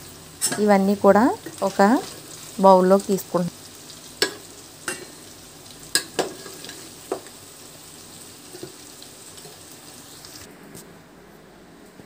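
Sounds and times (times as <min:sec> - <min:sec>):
spoon clinking on cookware: 0:04.2 - 0:05.2.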